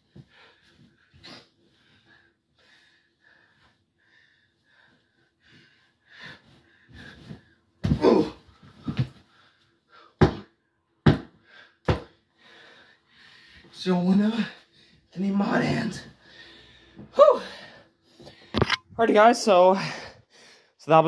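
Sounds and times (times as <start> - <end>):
heavy breathing and panting: 0.0 - 7.8, 11.3 - 15.2, 19.8 - 20.8
person grunting: 7.8 - 8.4
body thumping onto mattress: 7.8 - 9.2
hand slapping mattress: 10.2 - 12.2.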